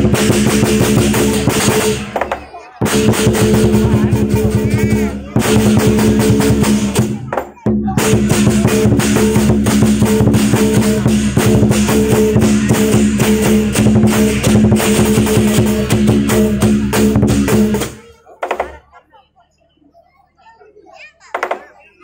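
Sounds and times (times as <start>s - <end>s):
big drum beaten rapidly: 0.0s - 18.7s
clashing cymbals: 8.0s - 18.0s.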